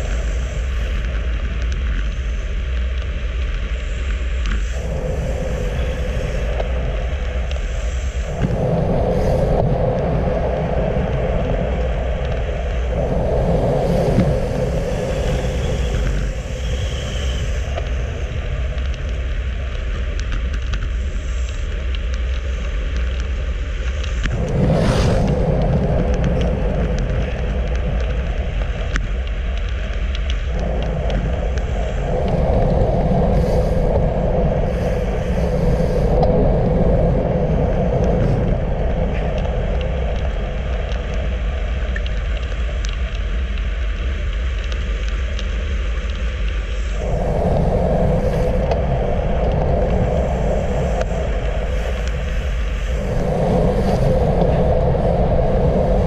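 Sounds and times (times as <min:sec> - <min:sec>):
wind rushing over microphone: 0:00.0 - 0:56.0
tyres rumbling on asphalt: 0:22.2 - 0:44.9
brief whoosh: 0:24.3 - 0:26.6.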